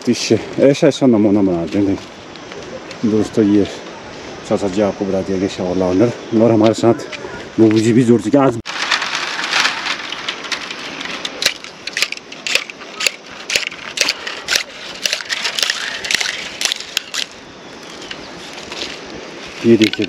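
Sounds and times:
bamboo strips crackling and clicking: 8.6 - 20.0
steady rustle: 8.6 - 20.0.

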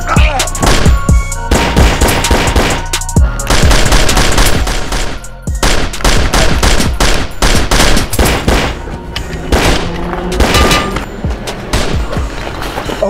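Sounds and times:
background music: 0.0 - 13.0
rapid handgun gunfire: 0.6 - 8.8.

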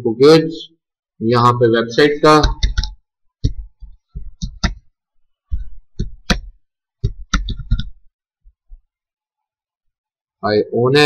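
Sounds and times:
typing on computer keyboard: 2.4 - 4.9, 5.5 - 8.0.

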